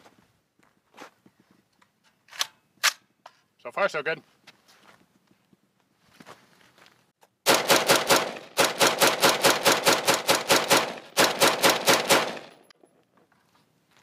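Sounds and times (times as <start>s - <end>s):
rifle firing rapidly: 7.5s - 12.6s.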